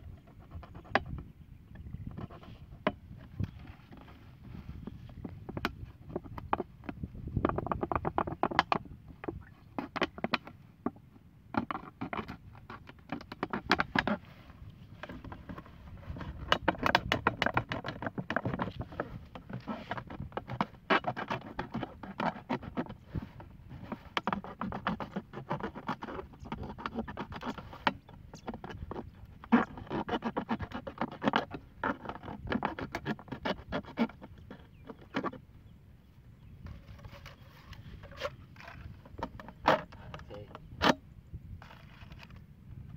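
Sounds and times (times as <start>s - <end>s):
knife sawing through plastic: 11.6s - 35.4s, 36.7s - 41.0s.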